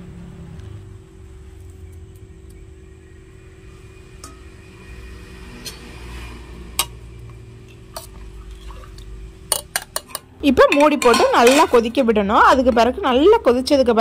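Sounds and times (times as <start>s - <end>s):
low steady hum: 0.0s - 14.0s
steel spoon clinking on pot: 9.5s - 12.0s.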